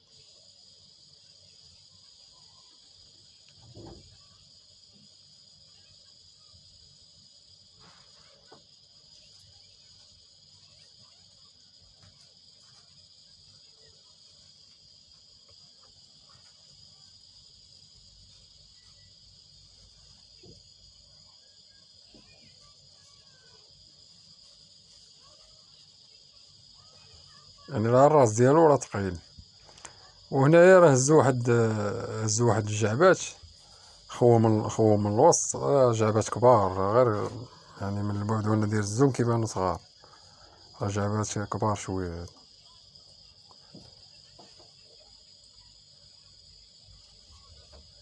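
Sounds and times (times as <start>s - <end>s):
faint high-pitched hiss: 0.0s - 48.0s
faint low thud: 3.6s - 4.4s, 20.3s - 20.9s.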